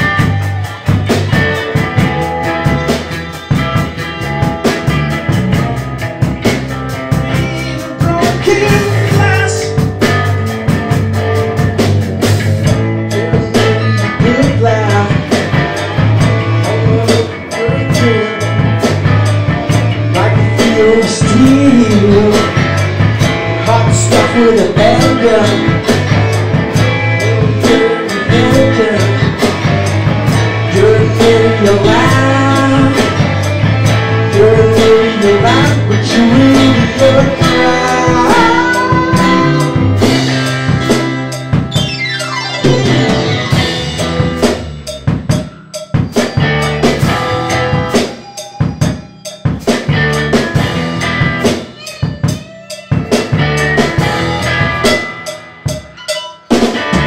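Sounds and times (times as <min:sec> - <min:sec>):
blues-rock band playing live: 0:00.0 - 0:57.0
bending melodic line: 0:35.4 - 0:57.0.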